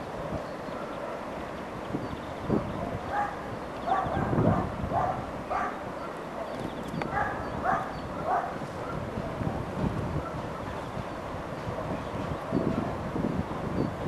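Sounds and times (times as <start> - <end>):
dog barking: 3.1 - 9.1, 10.2 - 10.8.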